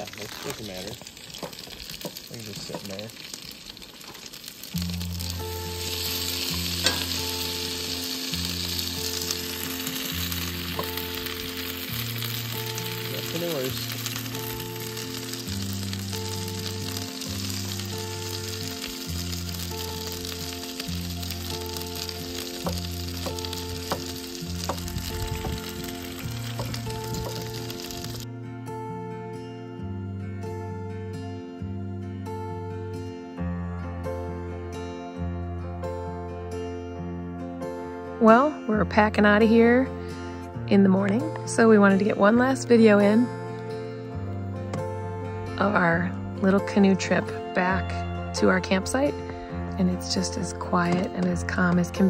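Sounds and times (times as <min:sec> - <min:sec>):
fish sizzling in a pan: 0:00.0 - 0:28.2
slow music of sustained chords: 0:00.0 - 0:52.0.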